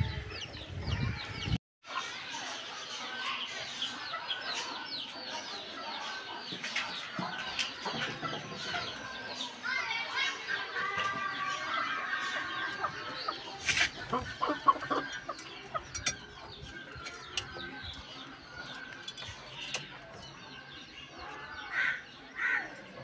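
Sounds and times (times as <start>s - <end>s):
chickens clucking: 0.0s - 23.0s.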